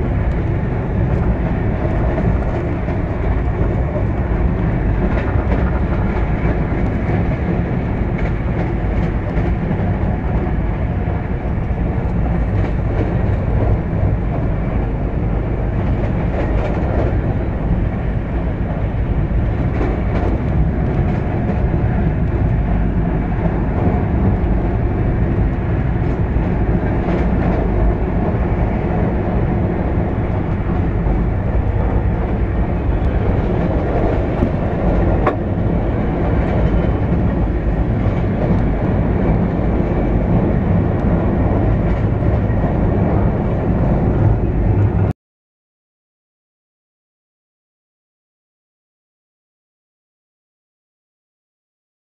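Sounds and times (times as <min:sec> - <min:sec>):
train wheels on rails: 0:00.0 - 0:45.1.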